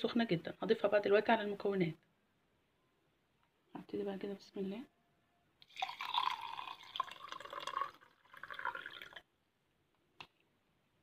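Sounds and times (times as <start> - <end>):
boiling water pouring into jar: 5.6 - 9.3.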